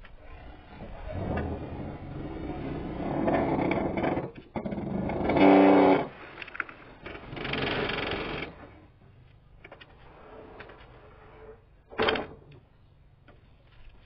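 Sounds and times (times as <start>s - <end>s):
wooden door scraping and sliding: 0.0s - 7.8s, 9.8s - 12.5s.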